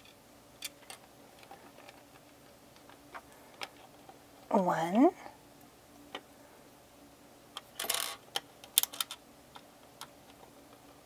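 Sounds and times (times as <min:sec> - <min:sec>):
plastic building pieces clicking: 0:07.7 - 0:10.9.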